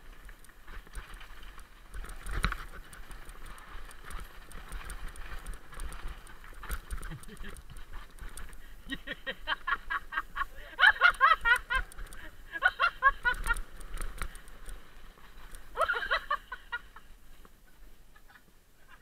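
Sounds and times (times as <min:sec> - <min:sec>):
high-pitched laughter: 0:08.9 - 0:13.6, 0:15.8 - 0:17.0.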